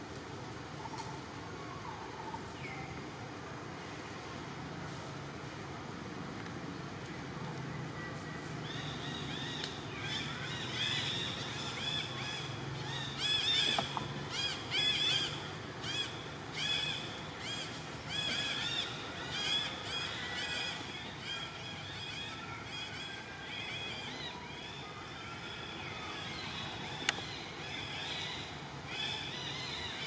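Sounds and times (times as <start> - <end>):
steady high hiss: 0.0 - 30.0
birds chattering: 8.7 - 30.0.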